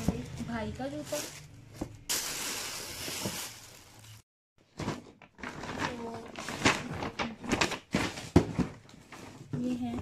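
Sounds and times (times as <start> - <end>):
tissue paper rustling: 2.1 - 4.2, 4.9 - 9.4.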